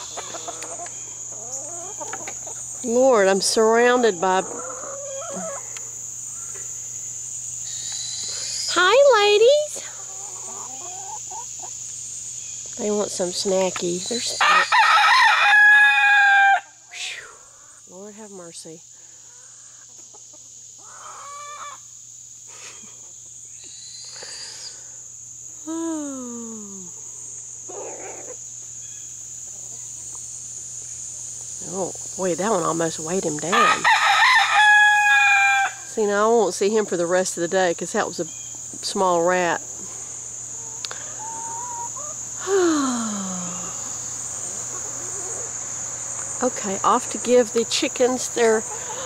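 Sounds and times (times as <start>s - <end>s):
chickens clucking: 0.0s - 6.8s, 9.7s - 14.6s, 19.2s - 23.5s, 27.6s - 30.6s, 36.0s - 42.4s, 43.6s - 49.0s
high-pitched insect drone: 0.0s - 49.0s.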